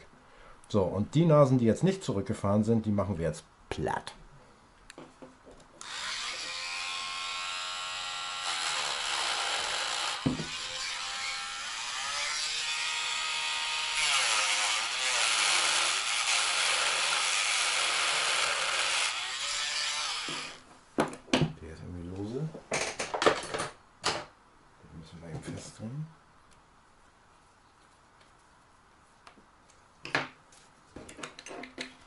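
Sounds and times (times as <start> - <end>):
rotary tool grinding metal: 5.8 - 20.6.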